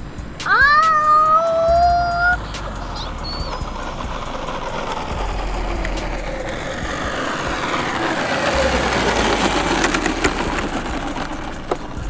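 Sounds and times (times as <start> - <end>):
tyre hiss: 0.0 - 12.0
electric motor whine: 2.4 - 12.0.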